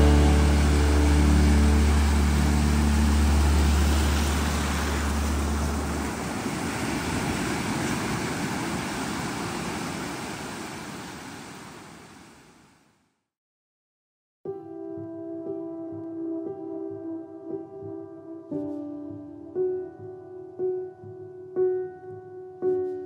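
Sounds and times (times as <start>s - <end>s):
low sustained music note: 0.0s - 6.1s
steady rushing noise: 0.0s - 12.3s.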